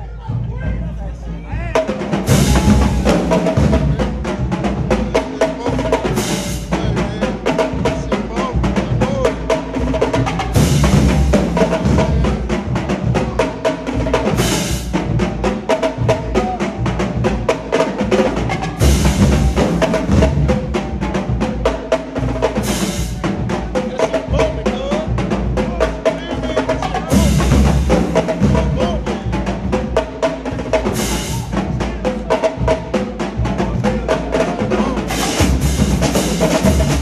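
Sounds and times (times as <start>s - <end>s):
snare drum strokes: 1.8s - 8.4s, 25.2s - 37.0s
low drum hits: 2.1s - 5.1s.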